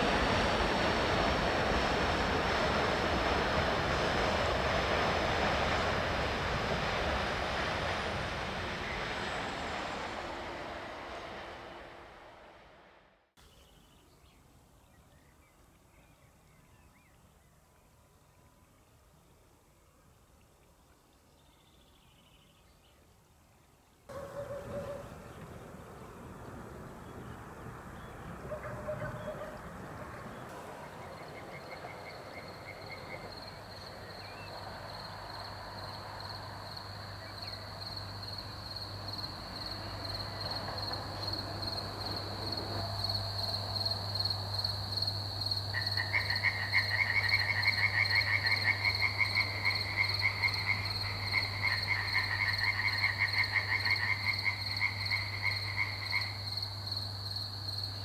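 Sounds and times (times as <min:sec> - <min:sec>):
crickets chirring: 0:30.3 - 0:58.0
frogs calling in pulsed trills: 0:44.6 - 0:57.8.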